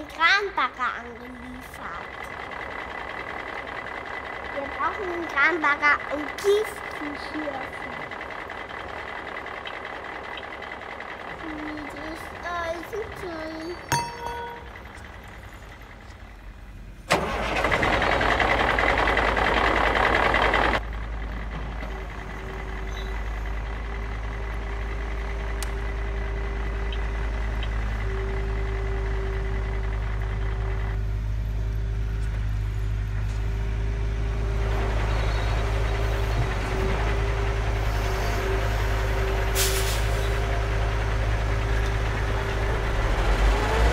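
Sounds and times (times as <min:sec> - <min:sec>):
truck engine revving and idling: 0:00.0 - 0:43.9.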